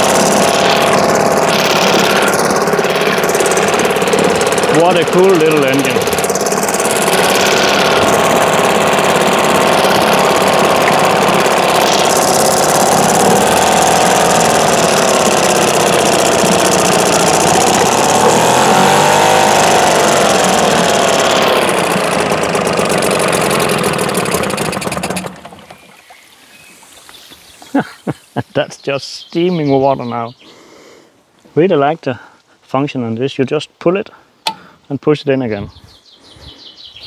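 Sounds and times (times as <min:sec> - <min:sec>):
outboard motor running: 0:00.0 - 0:28.4.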